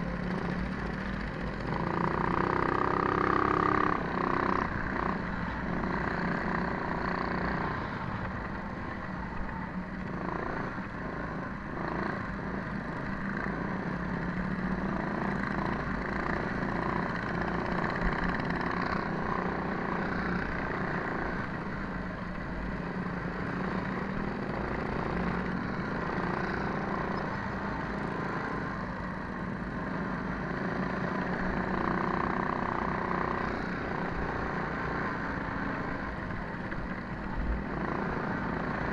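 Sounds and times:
small motorbike engine running: 0.0s - 21.7s.

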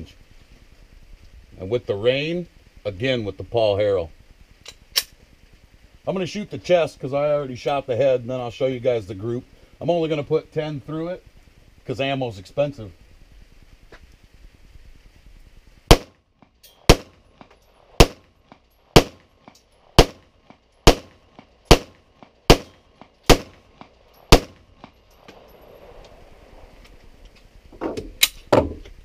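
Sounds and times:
distant gunshots: 15.9s - 16.1s, 16.9s - 18.3s, 18.9s - 19.3s, 20.0s - 25.0s
pistol shots: 15.9s - 16.1s, 16.8s - 18.3s, 18.9s - 25.0s.

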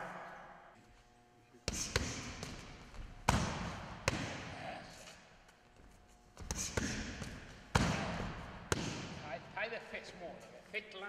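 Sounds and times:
strikes smacking a padded shield: 1.7s - 4.5s, 6.4s - 9.2s.

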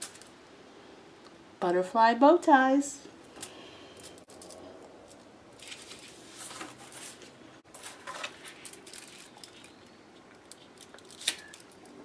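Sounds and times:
paper rustling and crinkling: 5.6s - 11.9s.

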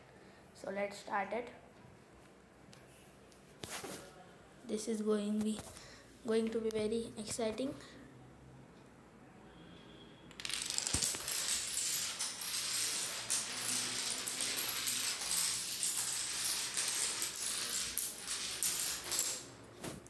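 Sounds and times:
dominoes toppling on tile floor: 10.3s - 19.6s.

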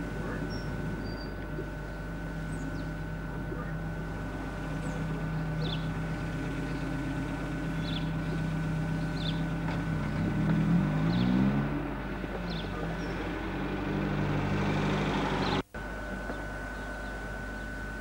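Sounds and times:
vehicle engine running: 0.0s - 18.0s
faint bird chirps: 0.2s - 3.8s, 4.5s - 10.4s, 15.4s - 17.9s
car driving past: 9.0s - 15.6s.

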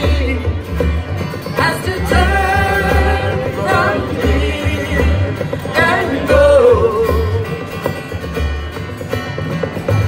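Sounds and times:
guitars: 0.0s - 10.0s
pulsing bass line: 0.0s - 10.0s
person singing: 1.6s - 7.7s.

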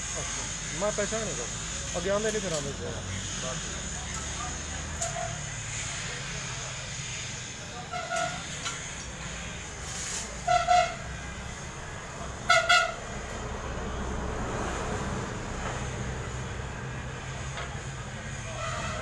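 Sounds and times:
vehicle horn beeps: 10.4s - 11.2s, 12.4s - 13.2s
low engine rumble: 11.2s - 19.0s.

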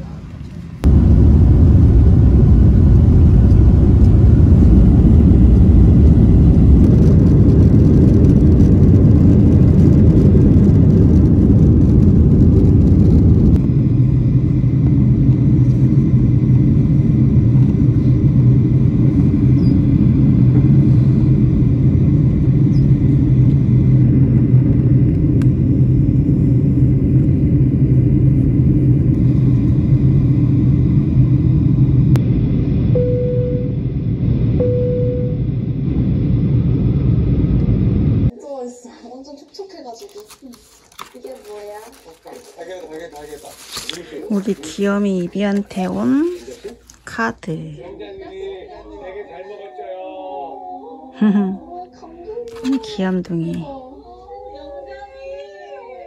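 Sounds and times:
jet cabin engine rumble: 0.0s - 38.3s, 41.7s - 47.7s.

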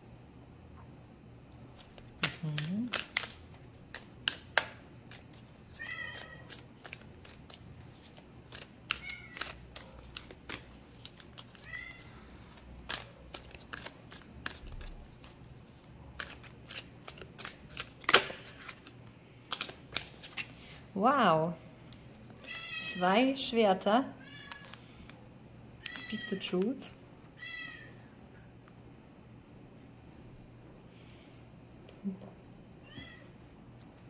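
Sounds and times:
cards clicking and tapping: 1.8s - 11.7s, 12.5s - 15.4s, 16.2s - 20.5s
cat meowing: 5.8s - 6.5s, 11.6s - 12.1s, 27.4s - 28.0s.

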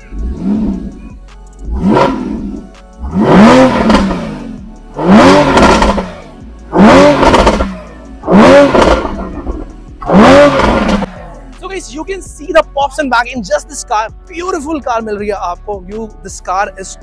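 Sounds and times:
car engine revving: 0.0s - 11.8s.

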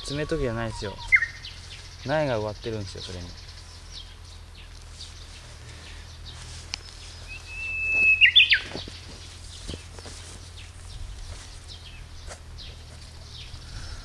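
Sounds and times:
songbird whistling song: 0.0s - 2.1s, 6.1s - 10.7s
faint bird chirps: 0.0s - 14.0s.

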